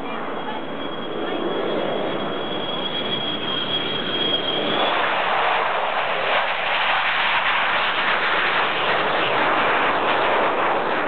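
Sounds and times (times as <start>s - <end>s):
jet fighter taking off: 0.0s - 11.0s.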